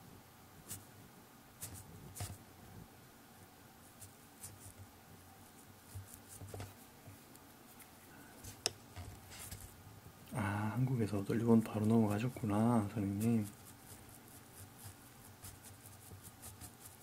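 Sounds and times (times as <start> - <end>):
brush on paper: 0.6 - 0.9, 1.6 - 2.4, 3.8 - 4.8, 5.4 - 8.6, 10.9 - 17.0.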